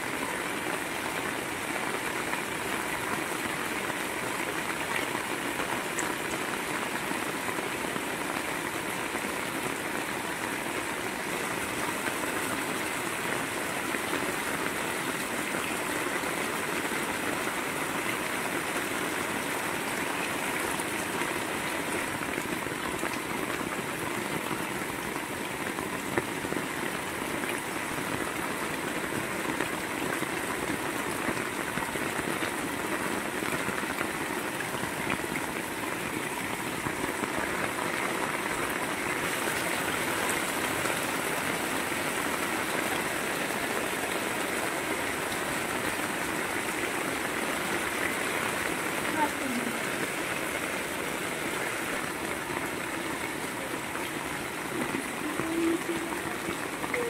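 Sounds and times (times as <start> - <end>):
heavy rain on metal roof: 0.0 - 57.0
water pouring off roof edge: 0.8 - 57.0.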